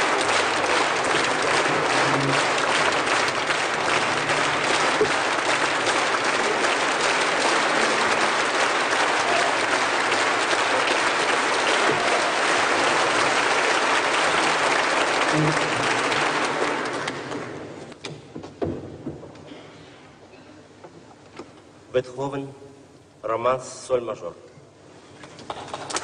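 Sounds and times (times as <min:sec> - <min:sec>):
audience applauding: 0:00.0 - 0:17.9, 0:25.5 - 0:26.0.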